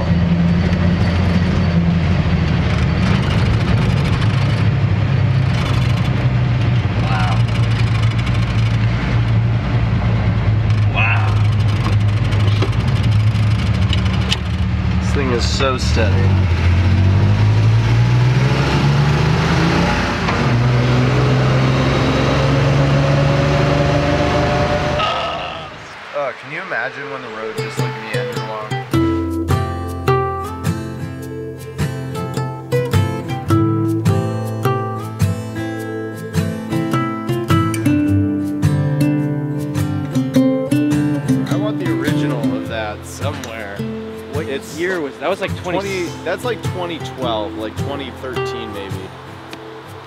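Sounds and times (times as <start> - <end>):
road and wind noise: 0.0 - 50.0
truck engine running: 0.0 - 50.0.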